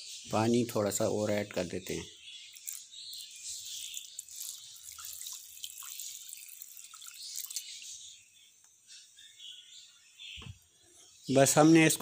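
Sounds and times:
water pouring into pot: 3.8s - 7.8s.

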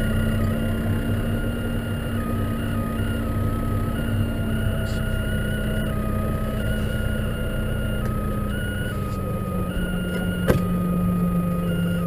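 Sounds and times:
thin whine alternating pitches: 0.0s - 12.0s
tractor engine running: 0.0s - 12.0s.

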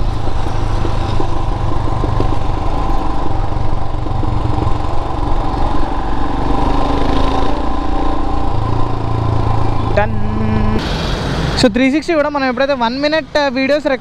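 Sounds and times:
motorcycle engines running: 0.0s - 14.0s.

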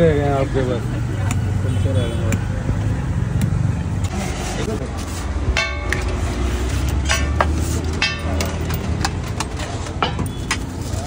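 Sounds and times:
road traffic hum: 0.0s - 11.0s
ladle striking steel pot: 5.5s - 6.2s, 7.0s - 8.7s
steel plates knocking together: 5.5s - 10.7s.

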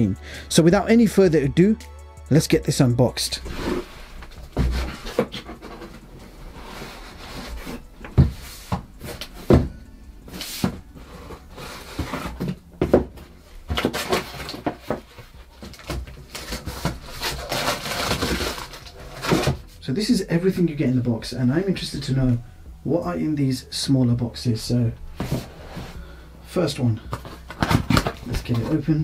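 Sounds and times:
cardboard boxes scraping and rustling: 3.4s - 9.7s, 10.4s - 19.8s, 25.2s - 26.0s.

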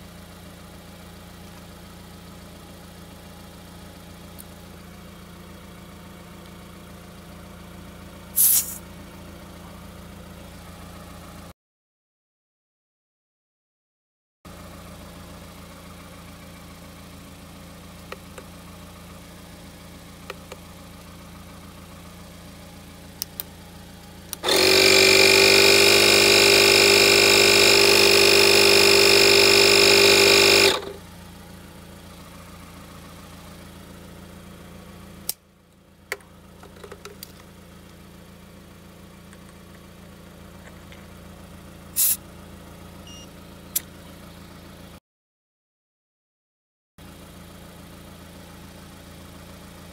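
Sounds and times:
electric compressor humming: 23.0s - 34.8s.

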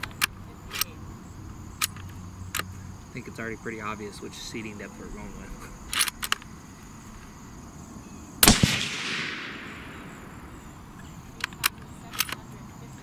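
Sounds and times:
crickets chirping: 0.0s - 13.0s
light clicks: 1.8s - 2.8s, 11.0s - 12.6s
suppressed rifle shot: 8.4s - 10.8s.

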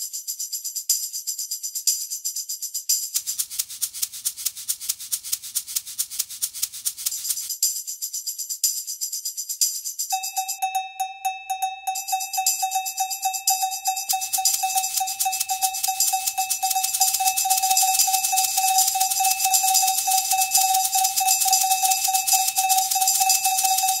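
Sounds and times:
fast high rattle: 3.2s - 7.5s, 11.9s - 24.0s
repeated high metallic note: 10.1s - 24.0s.

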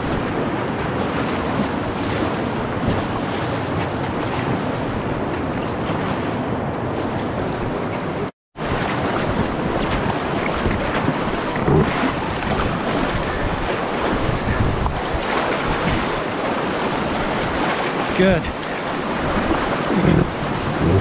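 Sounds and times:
wind buffeting microphone: 0.0s - 16.2s, 19.0s - 21.0s
river rapids rushing and splashing: 15.1s - 21.0s.

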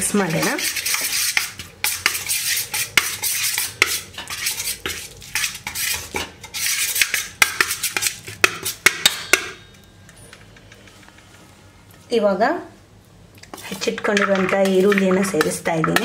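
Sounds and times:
metal spoon scraping a steel bowl: 0.0s - 9.8s, 13.5s - 16.0s.

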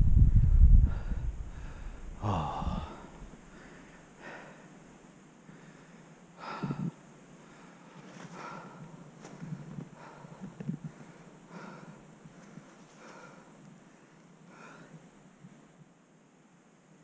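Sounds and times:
wind rumble: 0.0s - 3.7s
heavy breaths and gasps: 0.8s - 4.7s, 5.5s - 15.0s.

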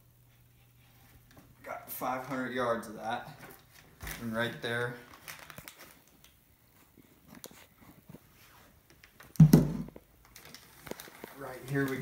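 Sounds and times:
cardboard tube rustling and knocking: 9.3s - 10.0s.

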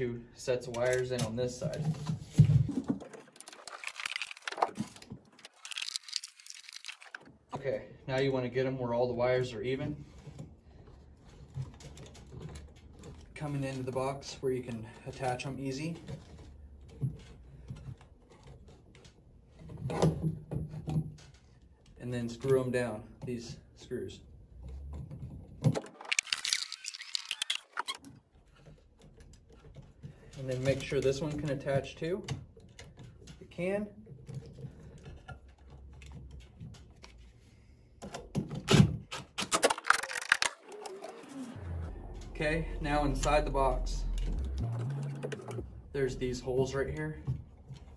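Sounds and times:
cables clicking and scraping on box: 0.7s - 7.6s, 10.0s - 22.7s, 24.6s - 41.4s.

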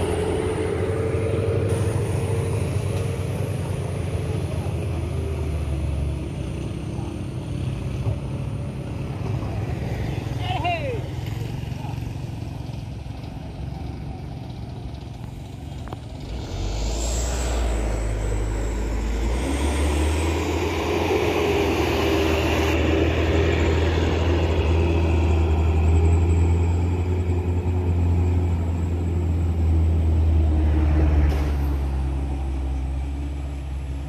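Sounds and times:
car passing: 0.0s - 7.1s, 15.4s - 34.0s
diesel truck engine droning: 0.0s - 34.0s.

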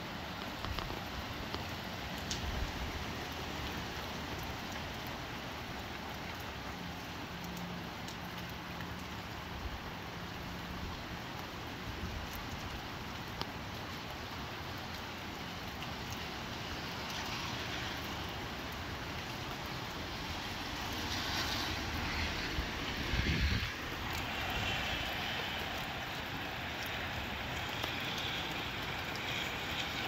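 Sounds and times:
steady rain: 0.0s - 30.0s
gusty wind: 20.5s - 27.8s.

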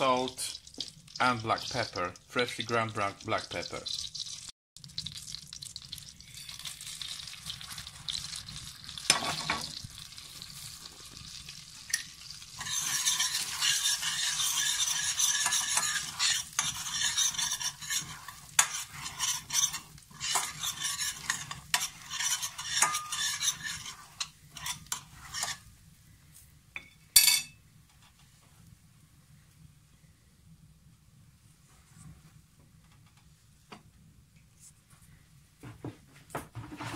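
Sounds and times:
breadcrumbs sizzling in butter: 0.0s - 26.6s
spoon stirring against pan: 6.2s - 25.7s.

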